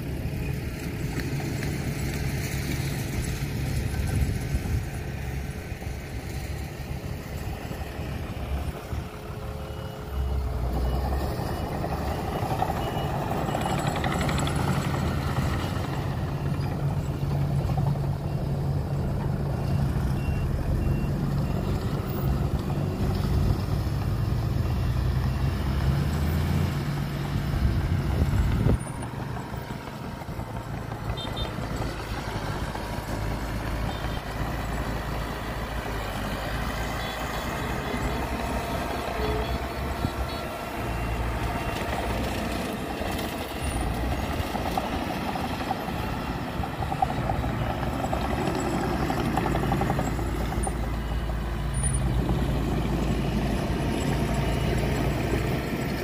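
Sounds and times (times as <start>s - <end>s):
diesel engines running: 0.0s - 56.0s
reversing alarm beeping: 8.2s - 17.2s, 18.1s - 23.6s, 36.2s - 43.8s.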